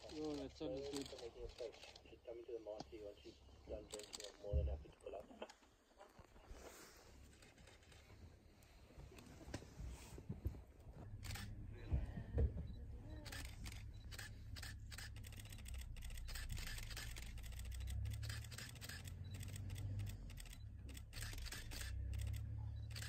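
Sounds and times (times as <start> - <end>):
camera shutters clicking: 0.0 - 2.0, 3.9 - 4.5, 11.2 - 11.6, 13.2 - 23.0.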